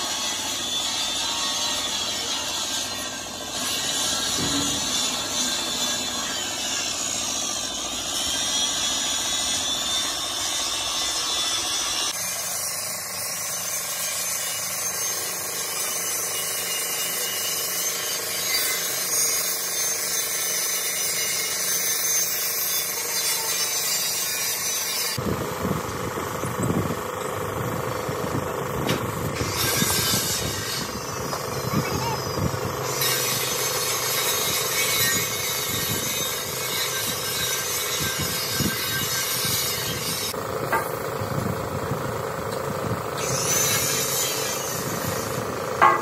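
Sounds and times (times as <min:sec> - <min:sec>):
low machinery rumble: 0:25.2 - 0:46.0.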